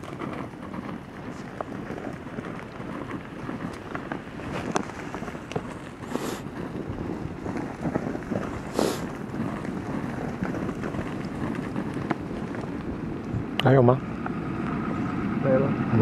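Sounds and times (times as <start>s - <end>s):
hooves thudding on snow: 0.0s - 15.3s
wind on microphone: 0.0s - 16.0s
breathy hisses: 6.0s - 6.5s, 8.6s - 9.2s.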